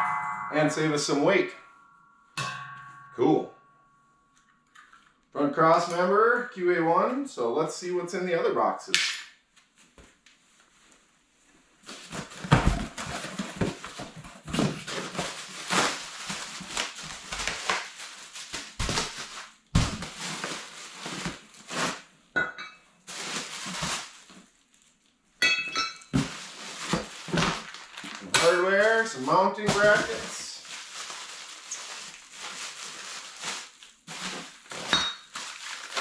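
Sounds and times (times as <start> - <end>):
cardboard and plastic crinkling: 11.8 - 22.1, 23.0 - 25.2, 26.1 - 36.0.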